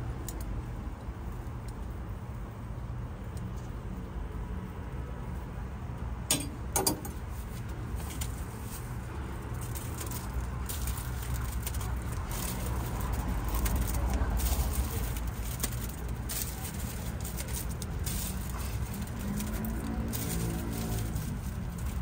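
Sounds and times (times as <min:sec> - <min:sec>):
street background rumble: 0:00.0 - 0:22.0.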